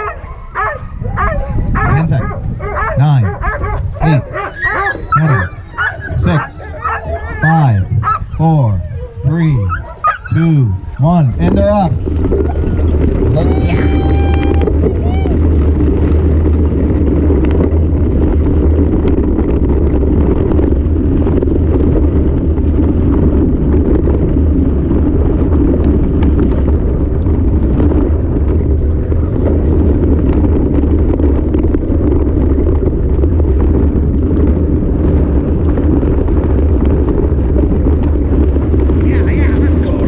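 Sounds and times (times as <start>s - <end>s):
bike tyre rumble: 0.0s - 40.0s
wind buffeting microphone: 0.0s - 40.0s.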